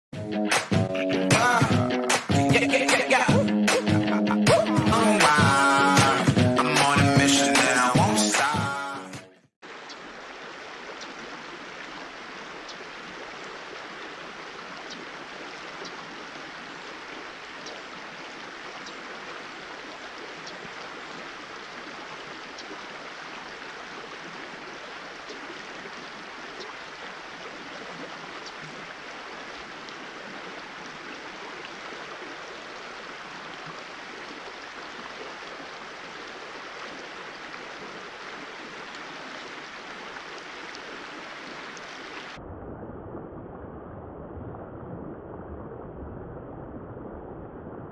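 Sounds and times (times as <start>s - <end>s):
stream rushing over riffles: 0.6s - 9.0s, 9.6s - 42.4s
faint small ticks: 17.6s - 17.8s.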